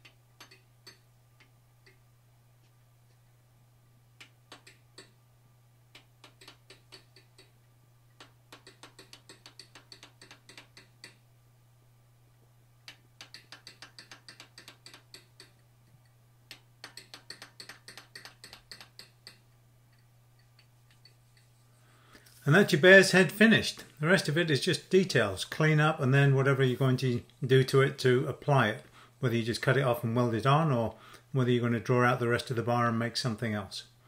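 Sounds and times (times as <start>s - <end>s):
steady low hum: 0.0s - 34.0s
hammer tapping metal punch: 5.9s - 11.2s, 12.9s - 21.4s.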